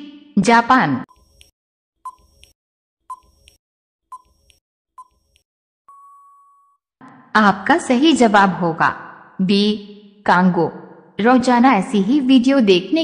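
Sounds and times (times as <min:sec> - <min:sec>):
timer ticks with pings: 0:02.1 - 0:06.4.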